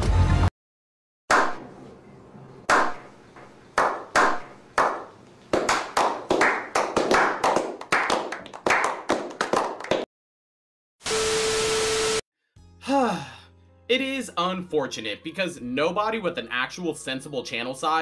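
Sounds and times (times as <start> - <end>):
echoing hand claps: 1.3 - 1.6, 2.7 - 3.0, 3.8 - 10.1.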